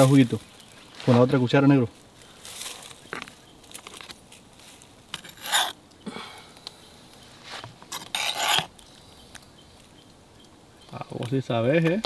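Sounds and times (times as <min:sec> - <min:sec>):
metal spoon scraping a pan: 0:05.1 - 0:05.8, 0:07.9 - 0:08.7.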